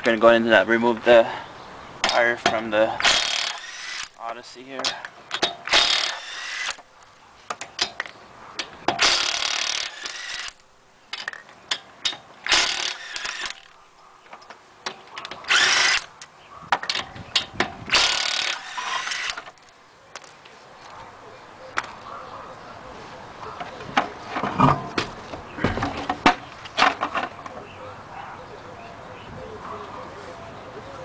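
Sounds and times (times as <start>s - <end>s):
cordless impact wrench spinning: 3.0s - 4.2s, 5.7s - 6.8s, 9.0s - 10.6s, 12.4s - 13.7s, 15.5s - 16.1s, 17.9s - 19.5s.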